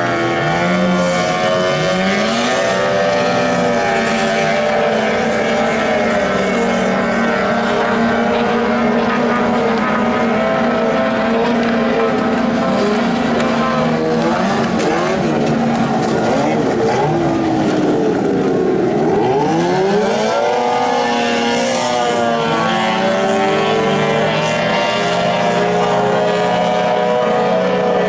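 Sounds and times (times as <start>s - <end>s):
racing boat engines: 0.0s - 28.0s.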